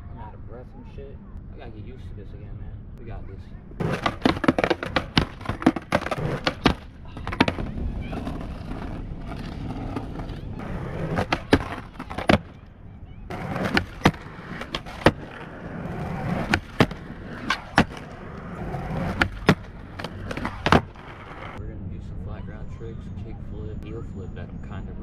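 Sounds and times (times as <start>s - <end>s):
skateboard tail clacking: 3.8s - 12.7s, 13.3s - 21.6s
skateboard wheels rolling on asphalt: 3.8s - 21.6s.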